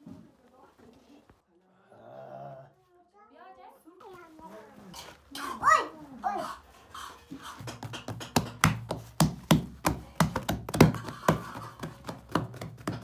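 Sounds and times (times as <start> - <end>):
hands slapping bread dough: 7.4 - 13.0.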